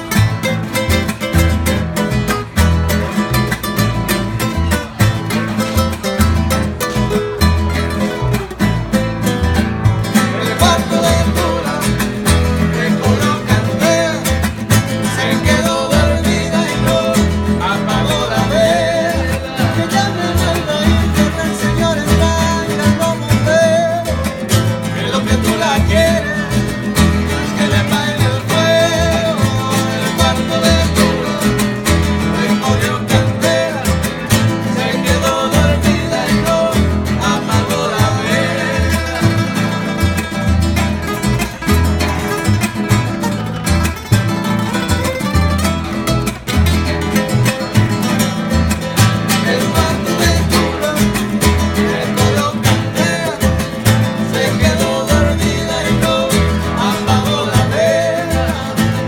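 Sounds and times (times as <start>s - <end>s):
double bass plucking: 0.0s - 59.0s
nylon-string guitar: 0.0s - 59.0s
man singing: 9.9s - 41.1s, 48.2s - 59.0s.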